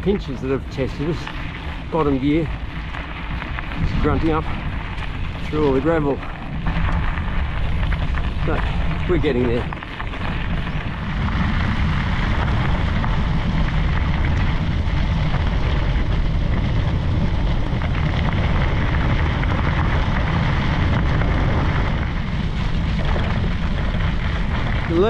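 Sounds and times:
bicycle tyres crunching on gravel: 0:00.0 - 0:25.0
wind buffeting microphone: 0:00.0 - 0:25.0.

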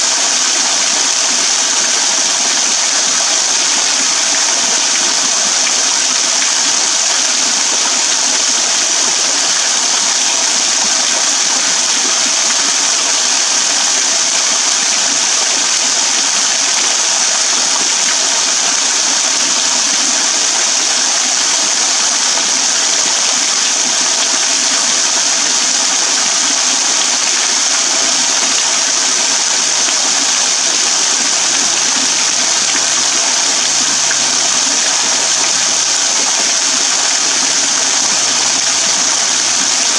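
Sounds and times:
waterfall splashing into pool: 0:00.0 - 0:39.9.

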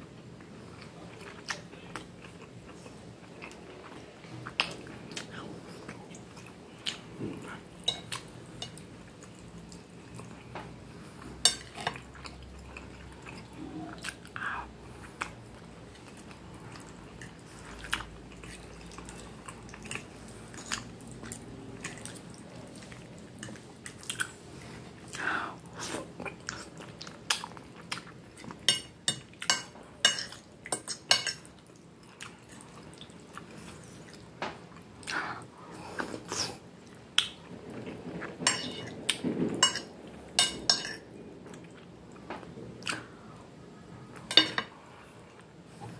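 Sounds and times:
person chewing food: 0:00.4 - 0:37.4
cutlery scraping on a plate: 0:38.4 - 0:38.9, 0:44.3 - 0:44.7.

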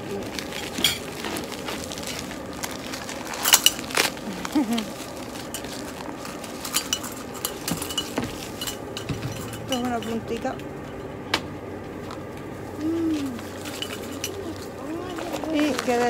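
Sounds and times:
sharp plastic crackles: 0:00.0 - 0:08.6
plastic packaging crinkling: 0:00.0 - 0:10.3, 0:12.2 - 0:16.0.

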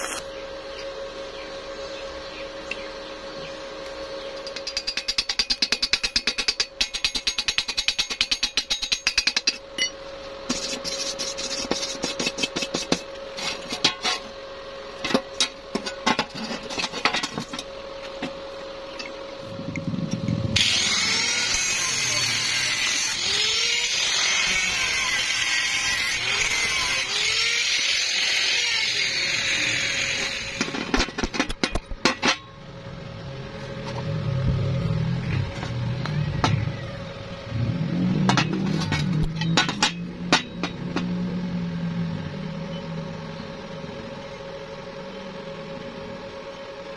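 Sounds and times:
arc welding crackling: 0:00.0 - 0:00.3
angle grinder whine: 0:13.1 - 0:31.3.

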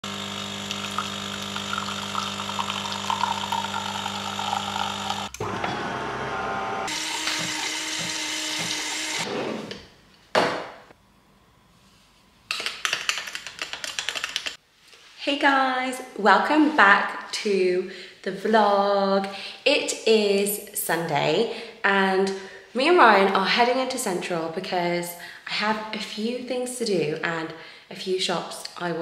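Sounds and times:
coffee machine pump hum: 0:00.0 - 0:09.3
espresso pouring into glass: 0:00.1 - 0:06.0.

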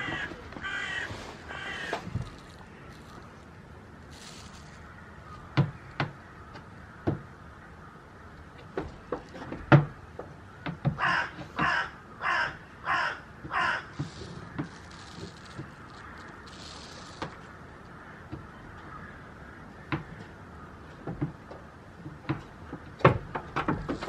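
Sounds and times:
hooves knocking on wood and stone: 0:00.0 - 0:03.3, 0:05.6 - 0:07.3, 0:08.6 - 0:12.6, 0:13.4 - 0:17.5, 0:21.0 - 0:24.0.

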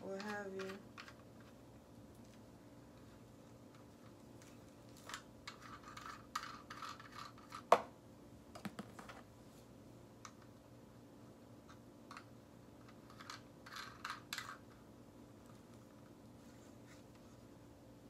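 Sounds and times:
plastic parts scraping and rustling: 0:00.0 - 0:07.7, 0:11.7 - 0:17.5.

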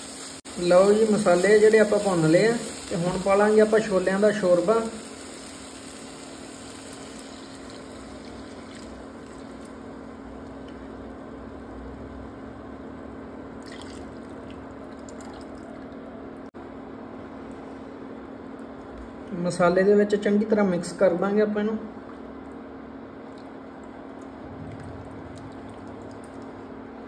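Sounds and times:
induction cooktop hum: 0:00.0 - 0:27.0
broth pouring and splashing: 0:13.6 - 0:16.0, 0:23.2 - 0:27.0.

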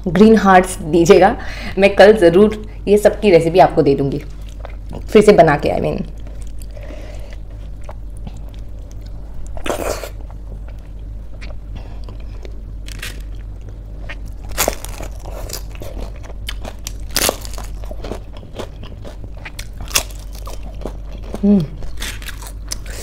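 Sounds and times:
chewing food: 0:04.2 - 0:05.2, 0:06.1 - 0:23.0
crispy fried snack crunching: 0:12.8 - 0:23.0.

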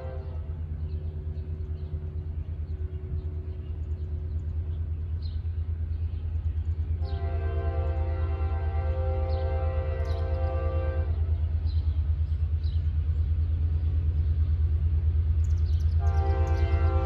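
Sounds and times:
train air horn blasts: 0:00.0 - 0:00.7, 0:07.0 - 0:11.4, 0:16.0 - 0:17.0
low train rumble: 0:00.0 - 0:17.0.

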